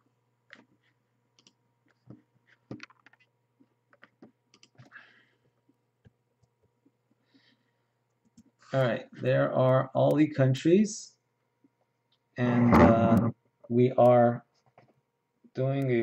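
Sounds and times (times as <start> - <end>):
keyboard and mouse clicks: 1.4 - 3.3, 3.9 - 4.9.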